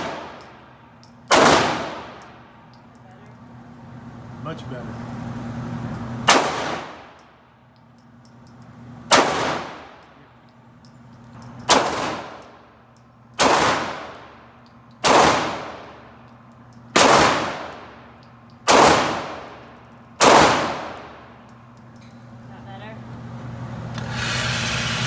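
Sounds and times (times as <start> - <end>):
pistol shots indoors: 1.3 - 2.2, 6.2 - 7.2, 9.1 - 10.0, 11.6 - 12.5, 13.4 - 14.2, 15.0 - 15.9, 16.9 - 17.8, 18.7 - 19.6, 20.2 - 21.0.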